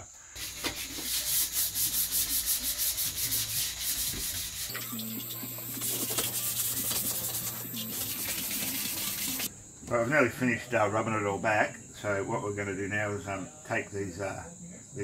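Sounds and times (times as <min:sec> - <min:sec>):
sandpaper rubbing on steel: 0:00.4 - 0:09.5.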